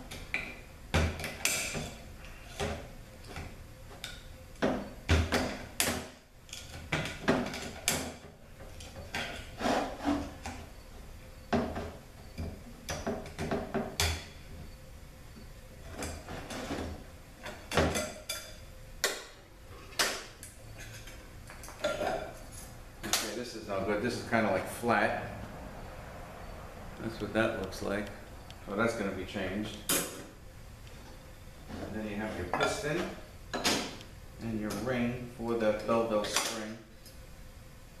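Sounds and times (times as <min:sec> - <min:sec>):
metallic clanks and scrapes: 0:08.7 - 0:10.6.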